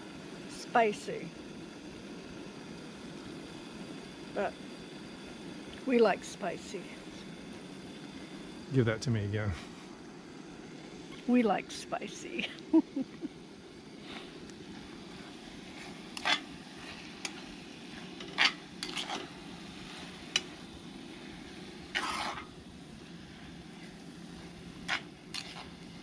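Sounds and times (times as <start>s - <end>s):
metal spoon scraping a pan: 15.8s - 17.4s, 18.0s - 19.3s, 21.9s - 22.5s, 24.8s - 25.8s.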